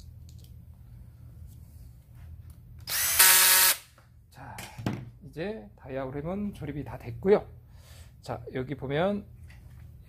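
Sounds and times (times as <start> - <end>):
cordless drill motor whine: 2.9 - 3.9.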